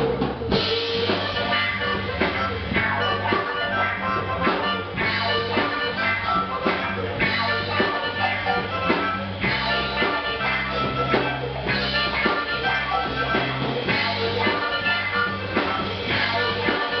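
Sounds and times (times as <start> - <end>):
drum kit steady beat: 0.0 - 17.0
electric guitar: 0.0 - 17.0
harmonica: 0.0 - 17.0.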